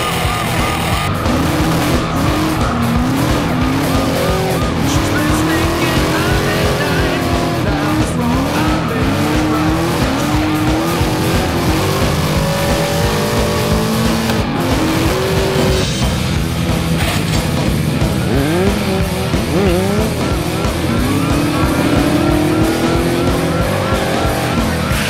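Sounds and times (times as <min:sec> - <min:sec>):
tyres squealing: 0:00.0 - 0:15.8
car engine revving: 0:00.0 - 0:25.0.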